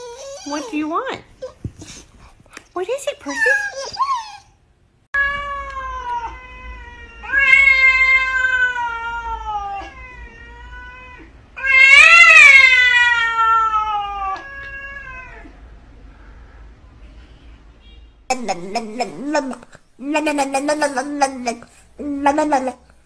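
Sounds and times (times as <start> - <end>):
cat yowling: 5.2 - 15.6.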